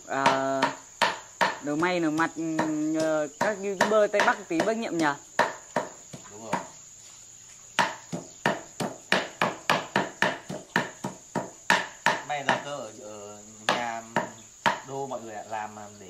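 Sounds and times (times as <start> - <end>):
cleaver chopping on wooden block: 0.2 - 6.8, 7.8 - 12.6, 13.7 - 14.9.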